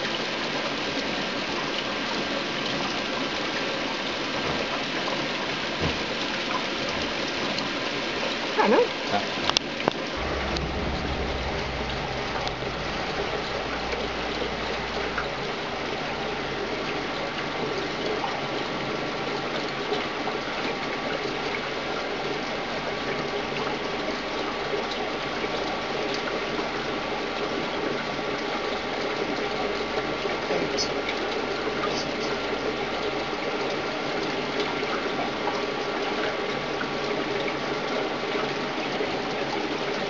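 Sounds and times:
gas bubbling through water: 0:10.1 - 0:18.2
low hum: 0:10.1 - 0:18.4.

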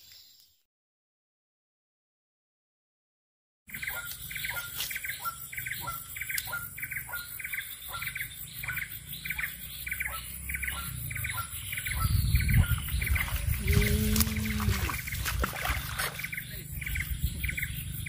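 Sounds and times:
bird calling: 0:03.7 - 0:18.0.

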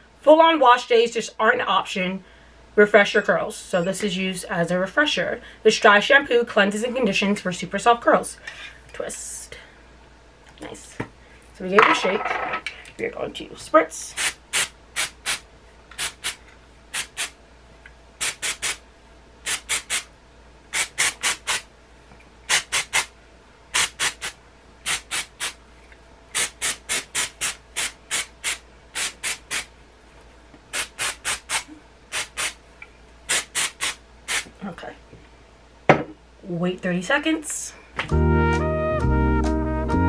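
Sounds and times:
aerosol can spray hisses: 0:17.0 - 0:17.4, 0:18.2 - 0:18.8, 0:19.5 - 0:20.1, 0:22.5 - 0:23.1, 0:23.8 - 0:25.6, 0:26.4 - 0:29.7, 0:30.7 - 0:32.6, 0:33.3 - 0:34.5.

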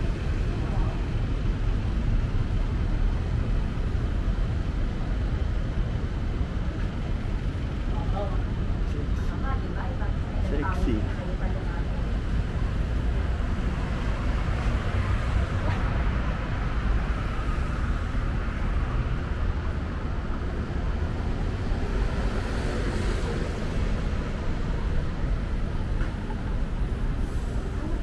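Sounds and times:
road traffic rumble: 0:00.0 - 0:28.0.

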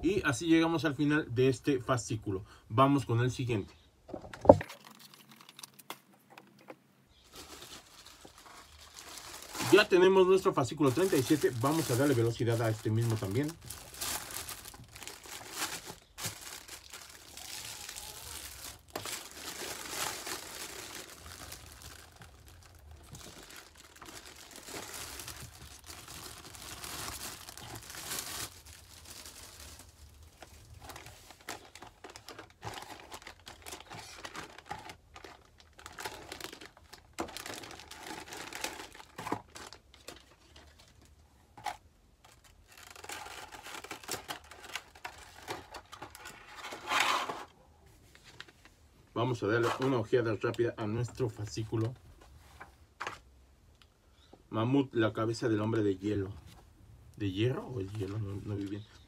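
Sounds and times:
plastic blister pack handled: 0:05.5 - 0:47.5
cellophane wrap crinkling: 0:07.1 - 0:47.5.

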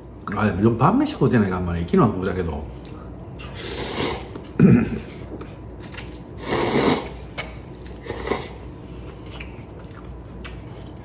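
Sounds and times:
man slurping noodles: 0:03.4 - 0:04.4, 0:06.4 - 0:07.2, 0:08.0 - 0:08.6.

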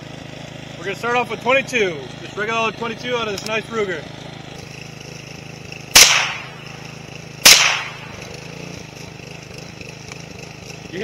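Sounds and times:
push mower engine running: 0:00.0 - 0:11.0
rifle shots: 0:05.9 - 0:08.4.

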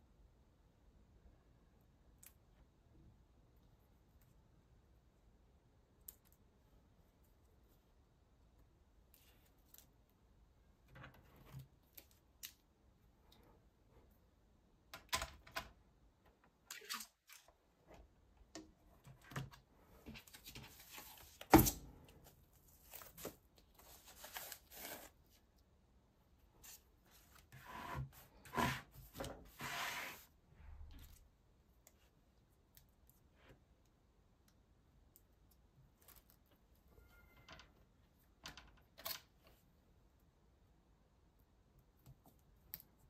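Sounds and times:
rustling scrape: 0:22.2 - 0:25.2, 0:26.6 - 0:30.3.

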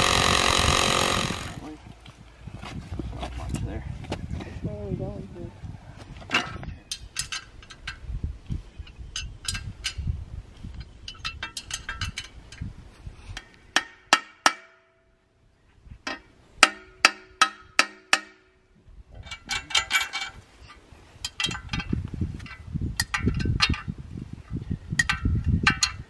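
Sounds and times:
metal parts clinking: 0:19.2 - 0:20.4.

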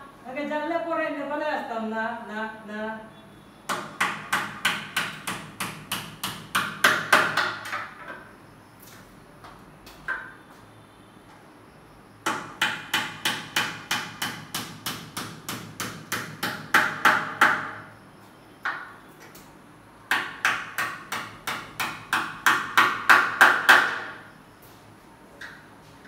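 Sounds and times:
hammer tapping metal window frame: 0:12.3 - 0:17.8.

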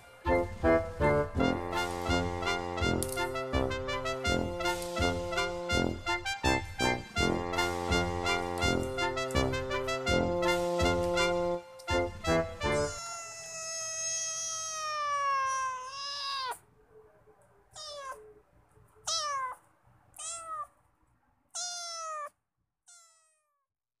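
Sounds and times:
kitten meowing: 0:12.8 - 0:16.6, 0:17.7 - 0:18.4, 0:19.0 - 0:19.6, 0:20.2 - 0:20.7, 0:21.6 - 0:23.6.

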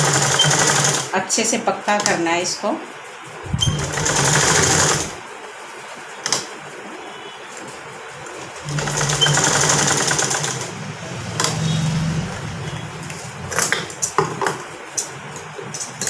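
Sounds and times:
sewing machine stitching: 0:00.0 - 0:01.1, 0:03.5 - 0:05.2, 0:08.5 - 0:10.7.

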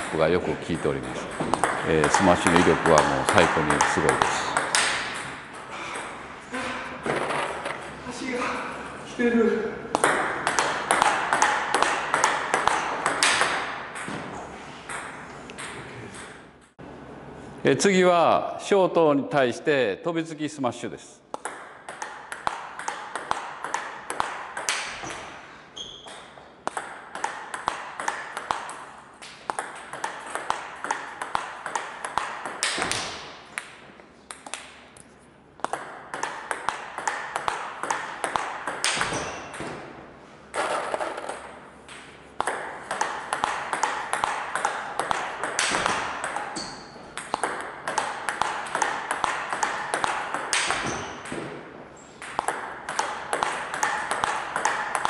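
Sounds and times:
table tennis ball clicking: 0:40.6 - 0:50.9.

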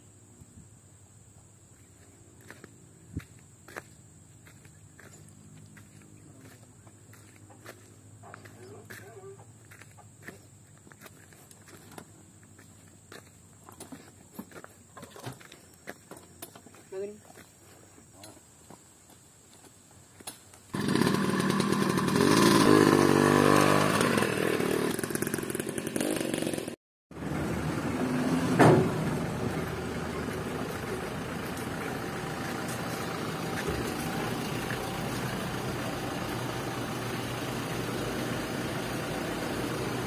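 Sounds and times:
vehicle engine running: 0:02.0 - 0:13.2, 0:20.7 - 0:40.0.

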